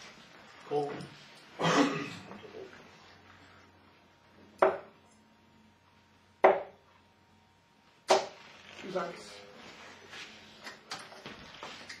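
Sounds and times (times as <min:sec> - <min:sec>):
room noise: 0:00.0 - 0:12.0
dart thudding into dartboard: 0:08.1 - 0:08.4.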